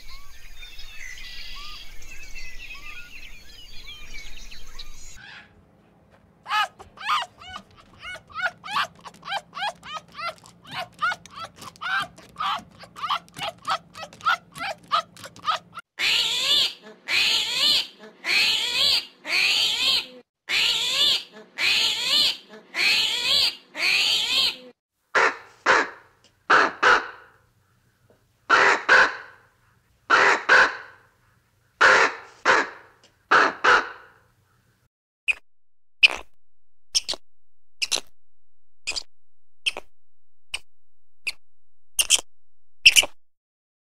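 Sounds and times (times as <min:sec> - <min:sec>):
wavering animal calls: 0:06.5 - 0:24.6.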